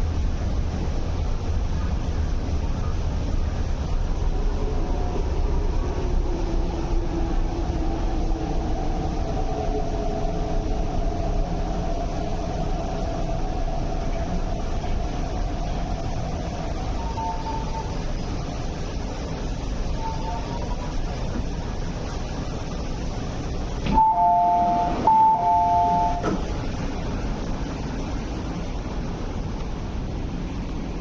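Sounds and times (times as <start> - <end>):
train running rumble: 0.0 - 31.0
brief higher tone: 23.9 - 26.4.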